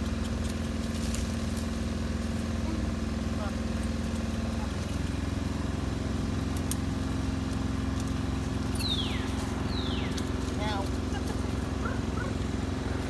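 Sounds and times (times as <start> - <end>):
low engine hum: 0.0 - 13.0.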